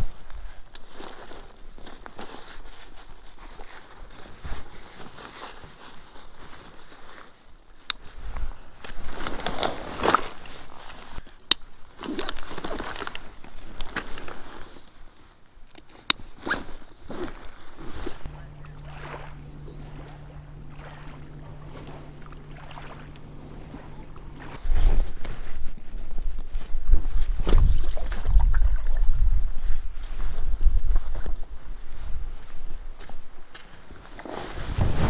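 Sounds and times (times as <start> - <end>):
zipper: 16.3 - 18.2
steady low hum: 17.8 - 26.3
fabric rustling: 34.2 - 35.0.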